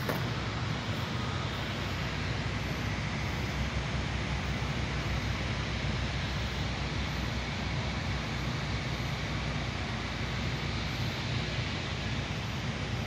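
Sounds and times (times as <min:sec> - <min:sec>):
low rumble with hiss: 0:00.0 - 0:13.0.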